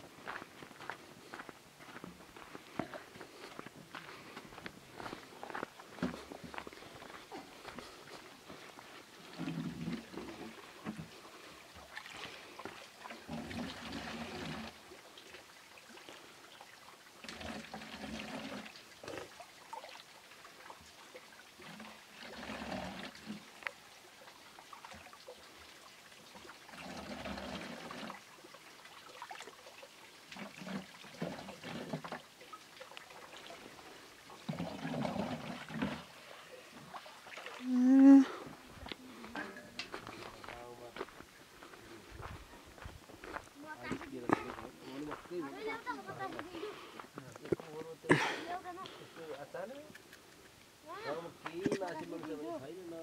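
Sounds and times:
bowl scooping water: 7.3 - 40.5
water pouring into jerrycan: 9.2 - 11.2, 11.8 - 16.3, 17.1 - 37.8.

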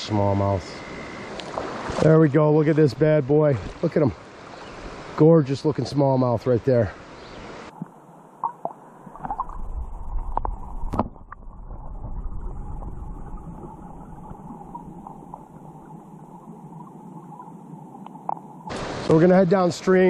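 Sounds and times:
muffled underwater creek rushing: 0.0 - 20.0
underwater clicks and knocks: 7.8 - 12.0, 18.0 - 18.5.

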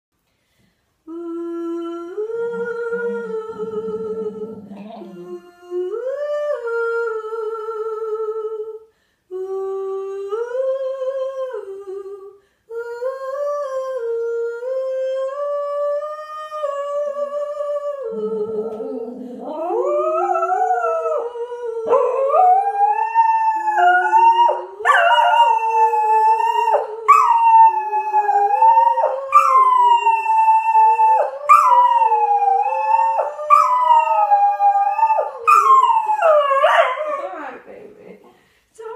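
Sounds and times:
woman singing long notes: 1.0 - 37.8
higher gliding howls: 1.1 - 5.4
dog howling: 18.1 - 37.4.

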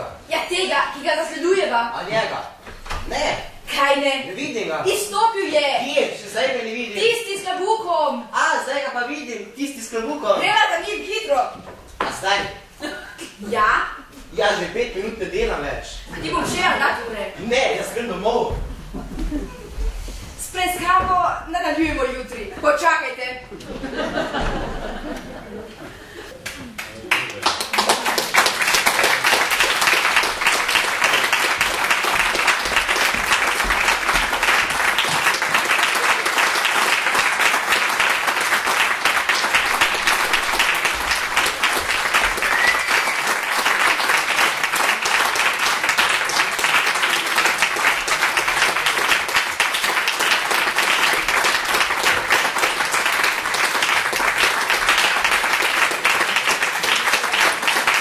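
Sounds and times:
audience applauding: 26.4 - 58.0.

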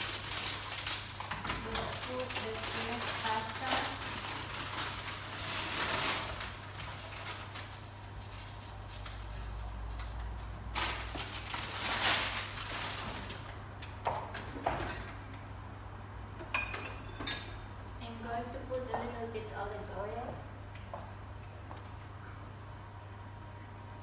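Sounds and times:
pasta packet rustling: 0.0 - 13.6.

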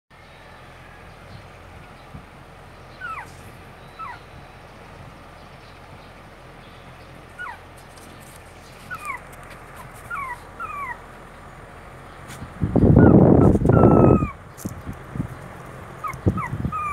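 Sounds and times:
puppies whimpering: 2.9 - 4.5, 7.2 - 11.1, 12.8 - 14.4, 16.0 - 16.9.

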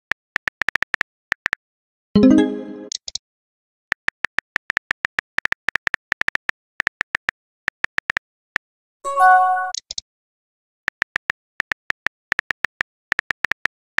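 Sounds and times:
message notification chime: 2.2 - 2.9, 9.1 - 9.8.

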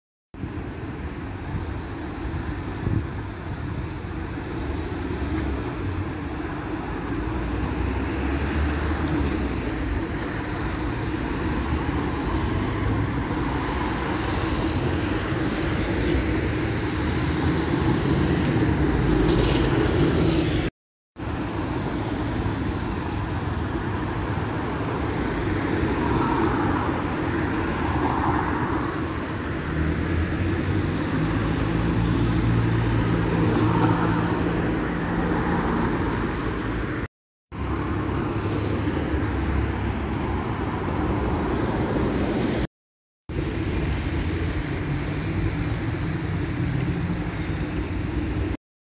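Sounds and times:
road traffic: 0.3 - 48.6
cars passing close by: 4.2 - 42.7.

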